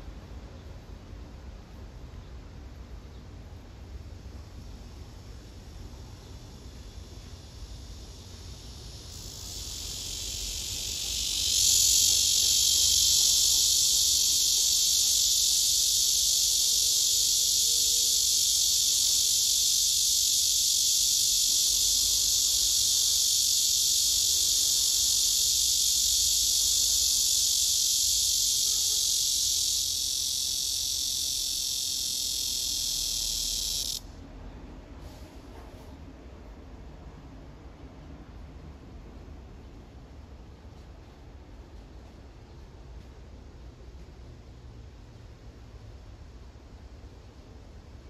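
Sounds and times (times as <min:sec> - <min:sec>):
cicada buzzing: 0:04.7 - 0:34.1.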